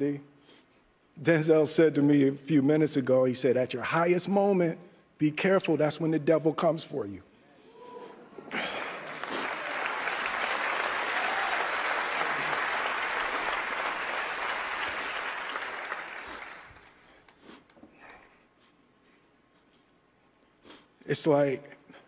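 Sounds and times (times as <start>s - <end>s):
audience applauding: 8.5s - 17.1s.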